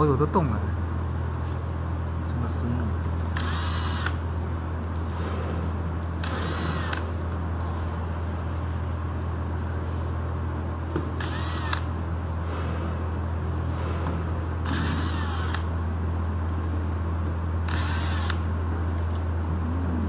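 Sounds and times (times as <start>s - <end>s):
low hum: 0.2s - 20.0s
cordless drill whining: 3.4s - 4.2s, 6.2s - 7.0s, 11.2s - 11.9s, 14.6s - 15.7s, 17.7s - 18.4s.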